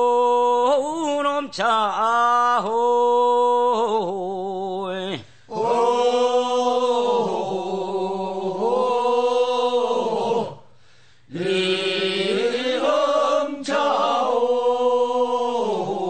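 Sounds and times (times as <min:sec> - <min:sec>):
funeral chant singing: 0:05.5 - 0:10.6, 0:11.3 - 0:16.0.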